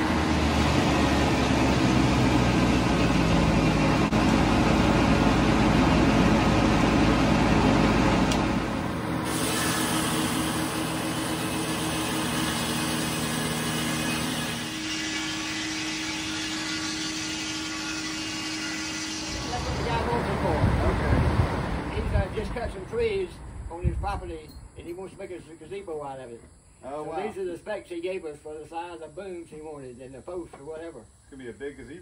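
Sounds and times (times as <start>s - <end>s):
sawmill engine drone: 0.0s - 23.7s
spinning saw blade: 9.3s - 20.1s.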